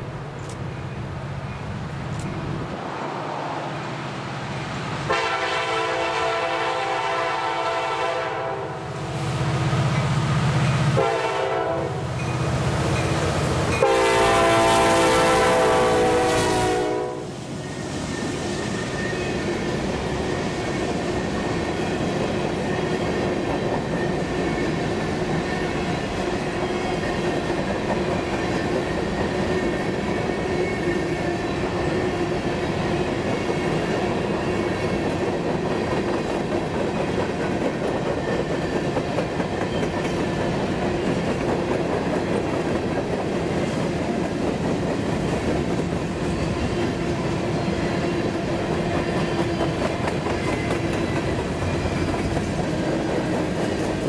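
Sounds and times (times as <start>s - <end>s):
locomotive air horn blasts: 5.1s - 8.9s, 11.0s - 12.1s, 13.8s - 17.3s
wheels clacking on rail joints: 48.0s - 54.0s.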